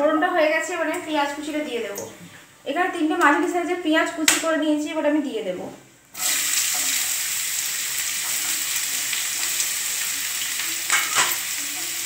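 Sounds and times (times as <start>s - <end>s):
onions sizzling in hot oil: 6.1s - 12.0s.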